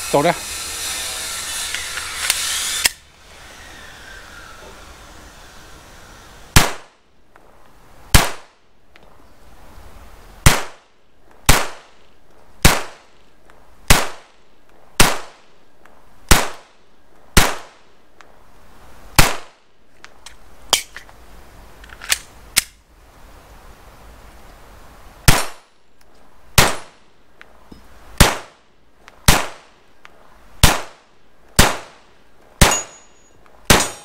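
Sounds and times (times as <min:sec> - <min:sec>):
pistol shots: 0:06.6 - 0:06.9, 0:08.1 - 0:08.5, 0:10.4 - 0:10.8, 0:11.5 - 0:11.9, 0:12.6 - 0:13.0, 0:15.0 - 0:15.4, 0:17.4 - 0:17.7, 0:19.2 - 0:19.5, 0:26.6 - 0:26.9, 0:28.2 - 0:28.5, 0:29.3 - 0:29.6, 0:30.6 - 0:31.0, 0:31.6 - 0:32.0, 0:32.6 - 0:33.0, 0:33.7 - 0:34.0.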